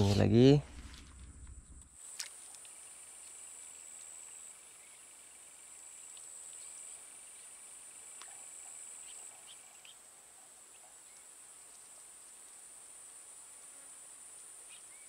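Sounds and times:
faint clicks: 0.8 - 4.4, 8.1 - 8.5.

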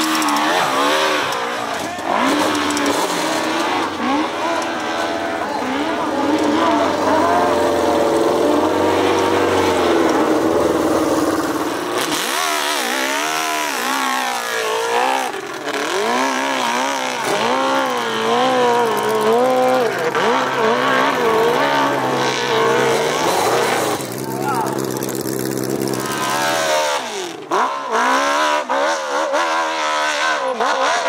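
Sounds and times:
motorcycle engine revving: 0.0 - 31.0.

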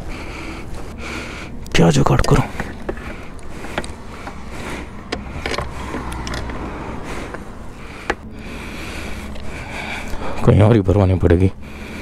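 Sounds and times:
low steady hum: 0.0 - 12.0
metallic clicks and knocks: 5.1 - 6.6.

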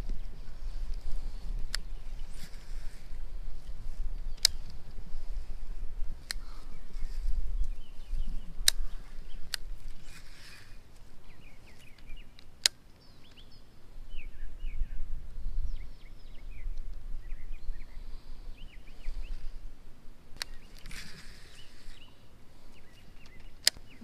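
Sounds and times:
small birds chirping: 0.0 - 24.0
sharp clicks: 1.6 - 2.6, 3.6 - 4.9, 6.2 - 6.6, 7.6 - 10.1, 10.9 - 13.5, 20.4 - 21.6, 22.7 - 24.0.

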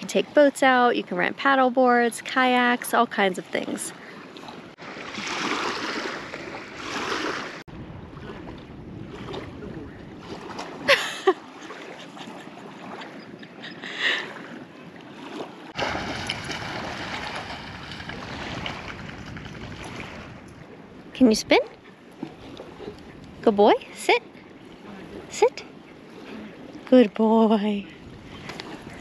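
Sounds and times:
waves lapping on sandy shore: 0.0 - 29.0
wind buffeting microphone: 4.5 - 29.0.

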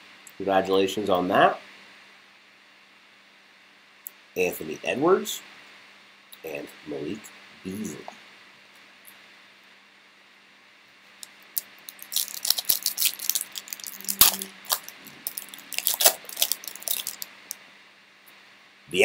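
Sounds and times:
foil pack tearing and crinkling: 11.9 - 17.3.

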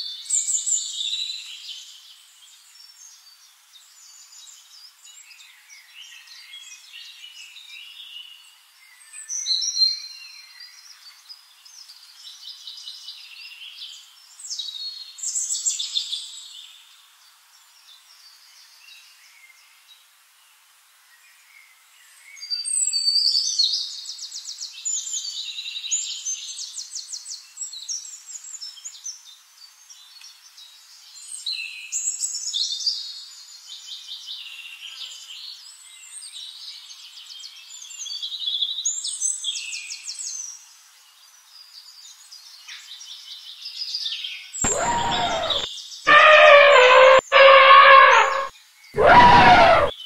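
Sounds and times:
elephant trumpeting: 44.6 - 49.9
songbirds trilling: 44.6 - 49.9.

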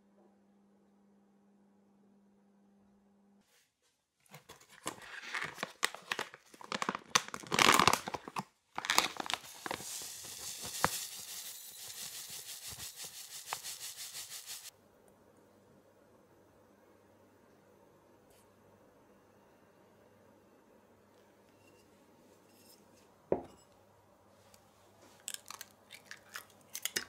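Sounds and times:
plastic pouch crinkling: 4.3 - 11.6
sugar pouring into glass bowl: 9.0 - 14.7.

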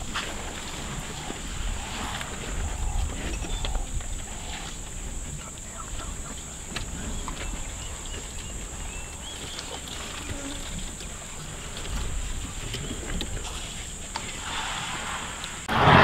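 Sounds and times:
high-pitched whine: 14.6 - 16.0.

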